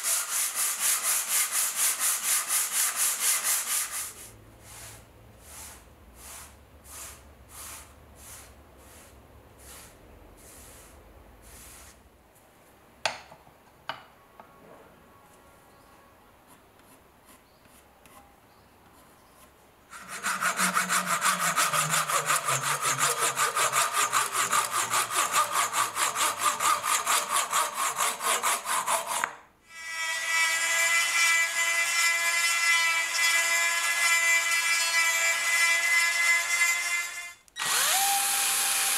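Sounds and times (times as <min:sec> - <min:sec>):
rubbing strokes on wood: 0:00.0 - 0:12.0, 0:19.0 - 0:29.2
power tool cutting wood: 0:19.9 - 0:38.9
rotary sanding tool whine: 0:37.6 - 0:38.9.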